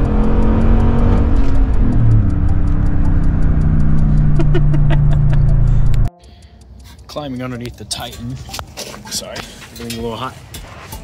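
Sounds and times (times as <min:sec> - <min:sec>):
truck engine from inside cab: 0:00.0 - 0:06.1.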